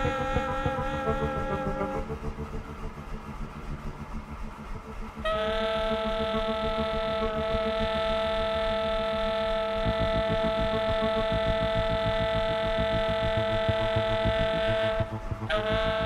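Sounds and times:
tenor saxophone long note: 0.0 - 2.5, 5.2 - 16.0
low rhythmic pulsing: 0.0 - 16.0.

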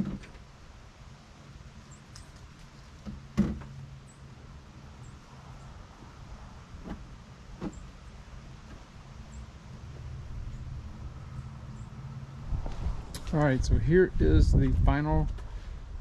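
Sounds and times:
knocks on a truck cab: 3.1 - 3.7.

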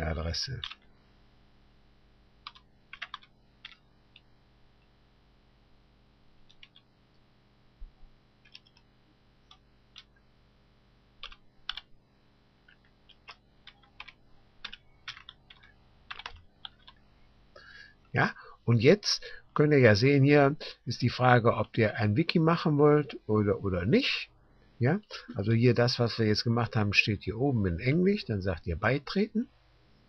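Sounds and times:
keyboard keystrokes: 2.4 - 3.8, 12.7 - 17.0.

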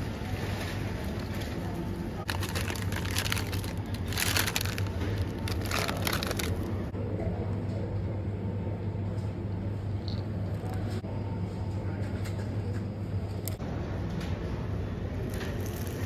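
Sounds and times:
steady low hum: 0.0 - 15.4
plastic bag crinkling: 2.3 - 6.8.

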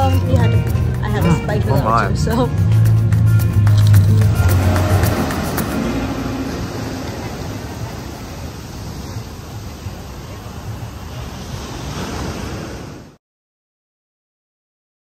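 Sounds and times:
rushing wind or surf rumble: 4.1 - 13.2.

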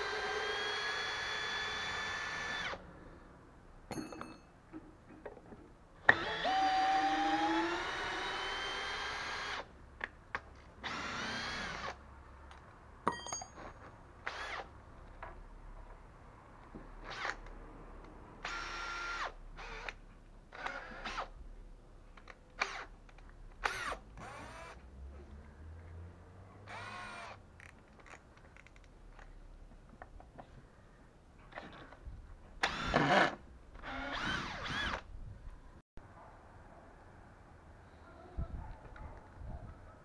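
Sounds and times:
cordless drill motor whining: 0.0 - 2.8, 6.1 - 9.7, 10.8 - 12.0, 23.6 - 24.8, 26.7 - 27.4, 32.6 - 35.1
drill bit boring into wood: 0.0 - 2.8, 6.1 - 9.7, 23.6 - 24.8, 26.7 - 27.4, 32.6 - 35.0.

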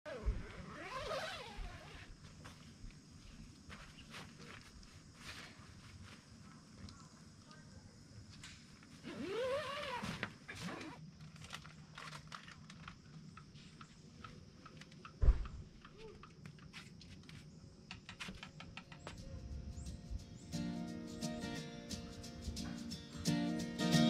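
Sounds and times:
dull thump: 15.2 - 15.6.

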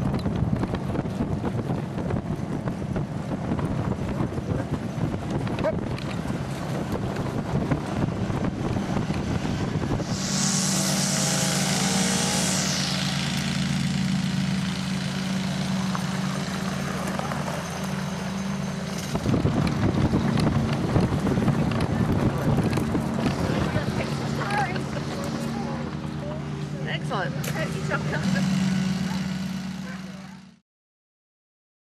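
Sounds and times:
motor hum: 0.1 - 30.5
cart rattling over gravel: 0.5 - 9.6, 14.3 - 30.4
loud hiss: 8.5 - 19.0.

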